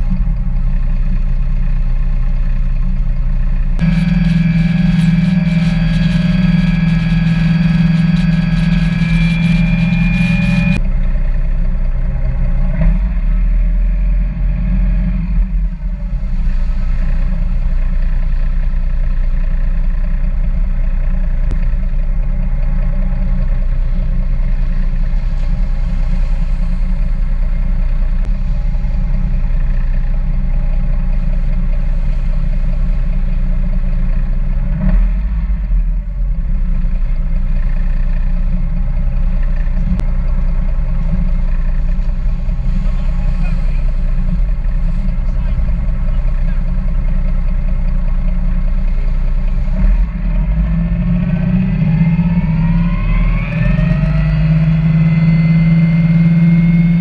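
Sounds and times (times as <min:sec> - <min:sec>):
boat engine drone: 0:00.0 - 0:57.0
high steady tones: 0:03.8 - 0:10.9.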